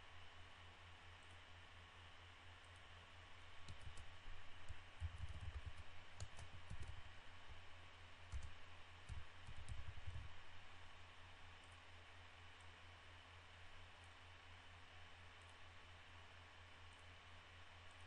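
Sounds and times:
low hum and hiss: 0:00.0 - 0:18.0
typing on computer keyboard: 0:03.6 - 0:07.1, 0:08.3 - 0:10.3.

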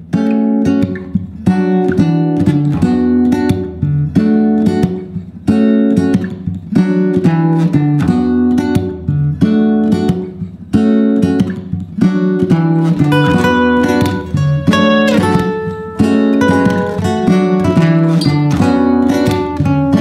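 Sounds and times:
acoustic guitar strumming chords: 0:00.0 - 0:20.0.

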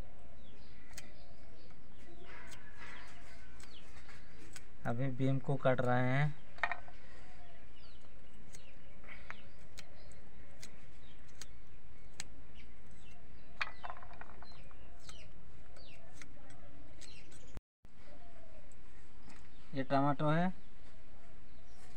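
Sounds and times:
birds chirping: 0:00.0 - 0:21.9.

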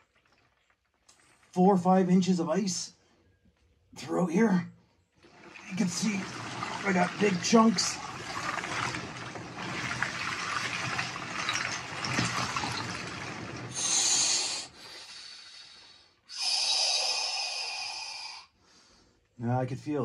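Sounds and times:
ice slabs sloshing in water: 0:05.3 - 0:13.9
ice rubbing and crackling: 0:05.6 - 0:13.9
breaths blown through pursed lips: 0:13.8 - 0:18.8.

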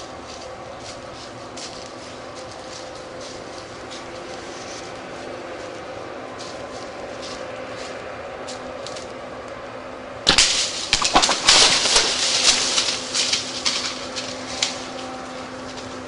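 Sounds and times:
deer crashing through dry leaves: 0:10.2 - 0:16.0
twigs snapping: 0:10.3 - 0:15.9.

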